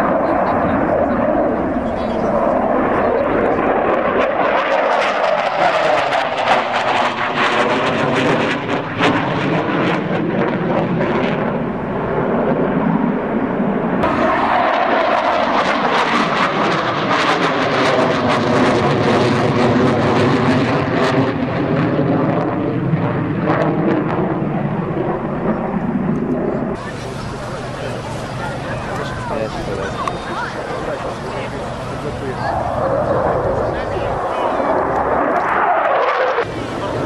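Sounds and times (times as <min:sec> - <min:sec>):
fighter jet engine roar: 0:00.0 - 0:37.0.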